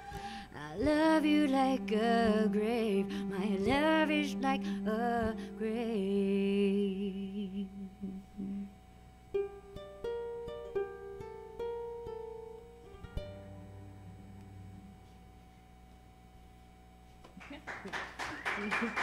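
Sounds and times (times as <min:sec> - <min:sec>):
ukulele and cello music: 0:00.0 - 0:08.7, 0:09.3 - 0:15.2
single ukulele notes plucked: 0:09.3 - 0:15.2.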